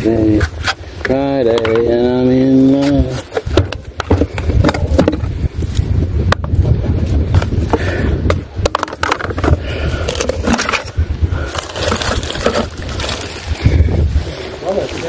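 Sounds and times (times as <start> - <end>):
wind rumbling on microphone: 0.0 - 15.0
phone handling scrapes and knocks: 2.8 - 5.4, 7.3 - 13.1.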